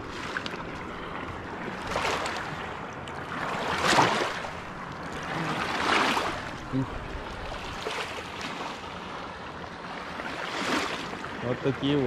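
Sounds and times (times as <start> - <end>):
waves washing on shore: 0.0 - 12.0.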